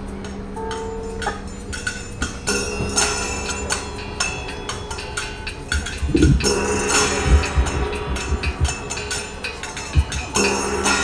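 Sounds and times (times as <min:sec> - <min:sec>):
steady held low tone: 0:00.0 - 0:11.0
heavy low drum strikes: 0:05.8 - 0:09.2.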